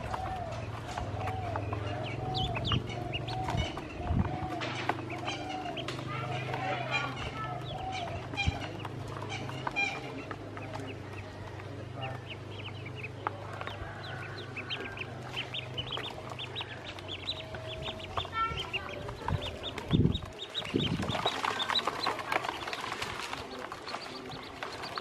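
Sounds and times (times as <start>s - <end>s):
dull low thumps: 0.0s - 6.1s, 12.2s - 21.3s
ducklings peeping: 0.0s - 25.0s.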